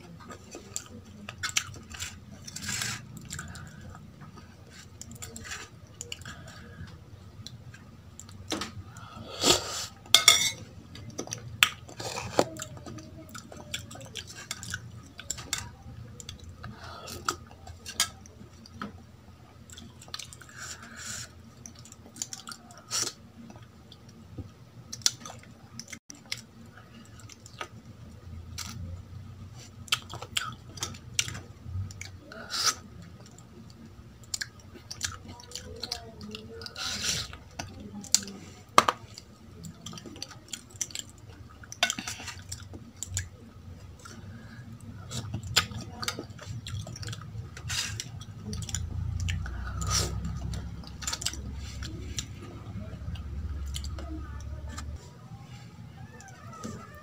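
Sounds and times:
chewing: 0.1 - 57.0
spoon clinking on steel bowl: 10.2 - 10.6.

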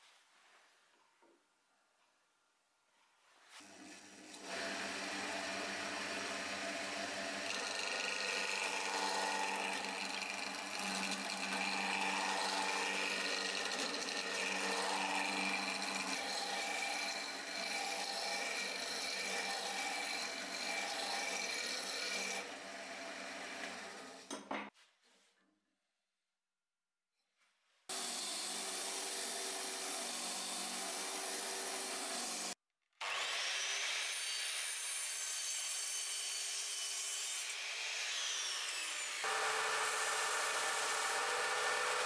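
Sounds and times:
wood lathe humming: 3.6 - 24.3, 27.9 - 32.6, 39.2 - 42.0
turning tool cutting wood: 3.6 - 24.4, 27.9 - 42.0.

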